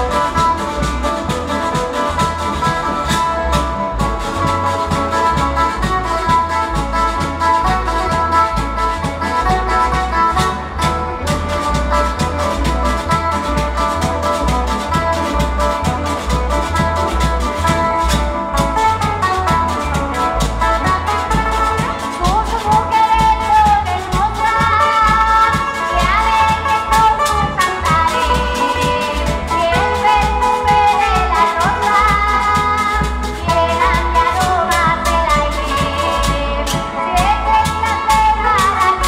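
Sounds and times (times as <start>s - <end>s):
drum and bass beat: 0.0s - 39.0s
plucked strings: 0.0s - 39.0s
strummed guitars: 0.0s - 39.0s
voices singing: 20.8s - 39.0s.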